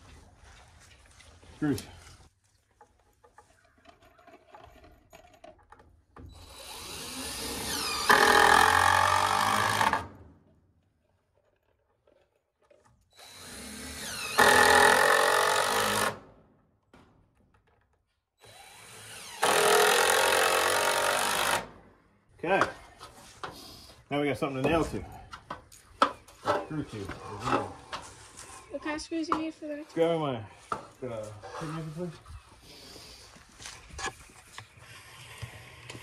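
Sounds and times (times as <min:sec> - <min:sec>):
cordless drill driving screws: 0:06.2 - 0:10.1, 0:13.1 - 0:16.2, 0:18.4 - 0:21.7.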